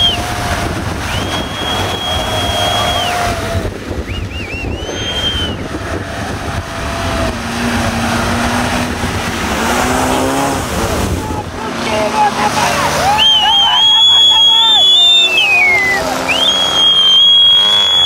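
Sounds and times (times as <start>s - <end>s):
wind on microphone: 0.0s - 11.6s
off-road engines revving hard: 0.0s - 18.0s
splashing through mud and water: 0.0s - 18.0s.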